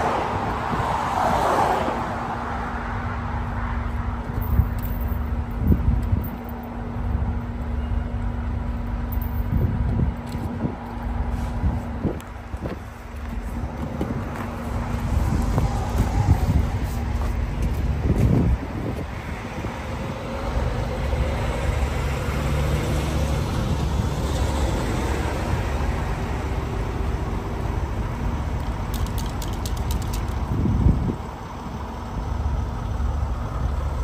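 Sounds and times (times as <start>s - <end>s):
road traffic noise: 0.0s - 34.0s
diesel engine idling: 2.6s - 34.0s.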